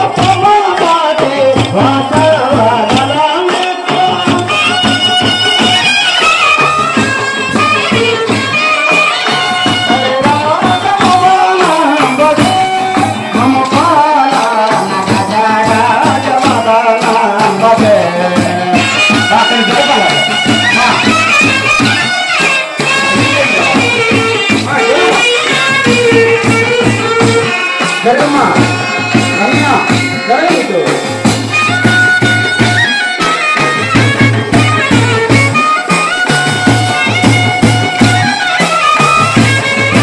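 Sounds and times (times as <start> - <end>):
person singing: 7.6 - 20.1.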